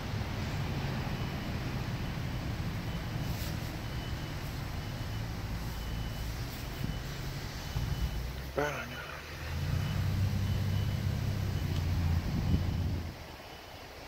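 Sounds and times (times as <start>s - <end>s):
vehicle engine rumbling: 0.0s - 14.0s.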